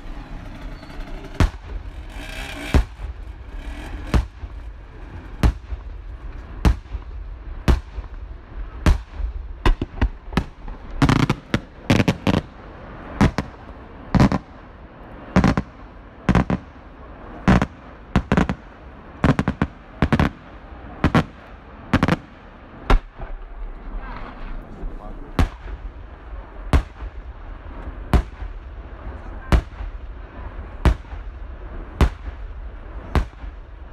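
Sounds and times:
firework shells bursting: 0.0s - 8.2s, 8.9s - 13.6s.

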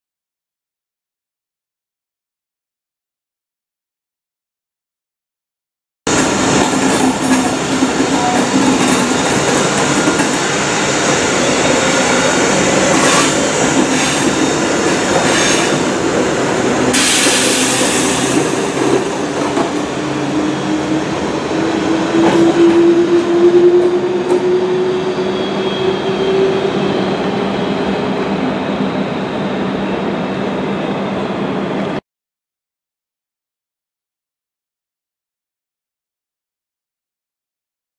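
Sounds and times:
train wheels clicking on rail joints: 6.1s - 11.2s, 12.7s - 19.9s
electric train whine rising: 6.1s - 31.9s.

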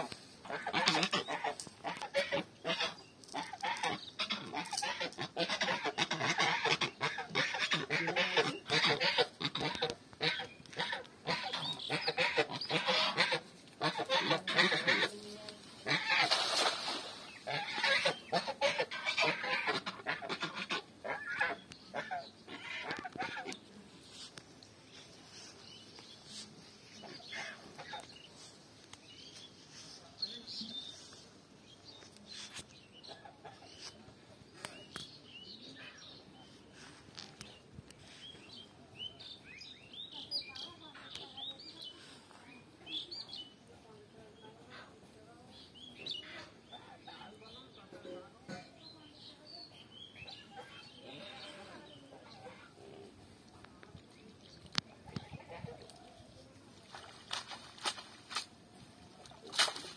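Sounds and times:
geese honking: 0.0s - 15.2s, 17.4s - 23.6s
birds chirping: 0.0s - 59.9s
cast net splashing into water: 15.9s - 17.6s, 56.8s - 58.6s, 59.3s - 59.9s.

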